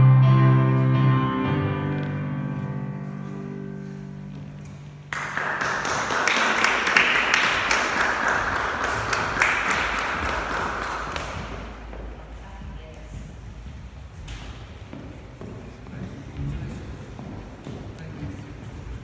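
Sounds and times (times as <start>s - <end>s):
audience applauding: 5.0s - 11.9s.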